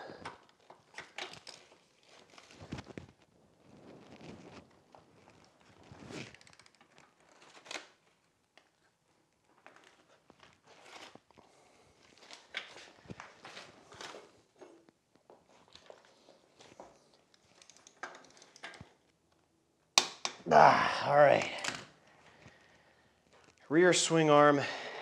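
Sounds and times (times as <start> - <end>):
tools and parts handled: 0.1 - 3.2, 4.0 - 8.8, 12.0 - 19.4.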